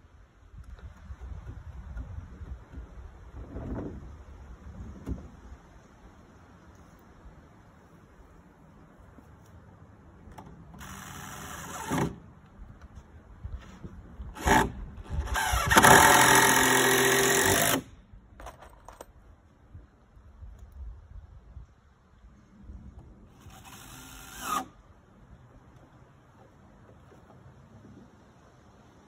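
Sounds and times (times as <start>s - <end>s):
power drill driving screws into wood: 10.8s - 12.2s, 14.4s - 17.9s, 23.3s - 24.8s.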